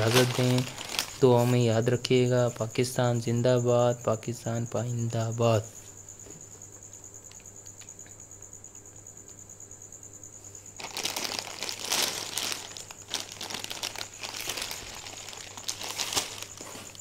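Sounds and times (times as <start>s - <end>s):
plastic film crinkling: 0.0s - 1.6s, 10.8s - 17.0s.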